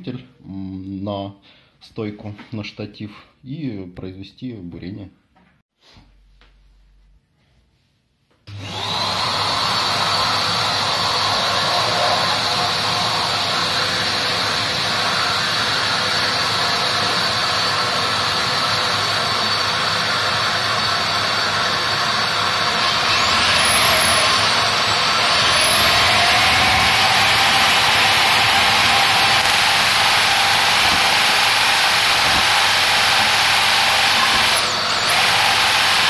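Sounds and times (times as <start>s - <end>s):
core drill motor whine: 8.5s - 36.0s
vacuum dust extractor rushing: 8.5s - 36.0s.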